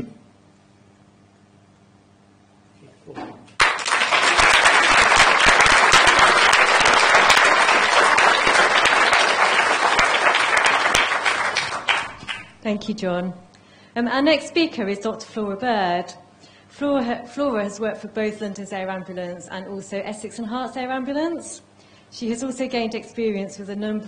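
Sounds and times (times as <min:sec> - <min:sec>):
audience applauding: 0:03.6 - 0:12.6.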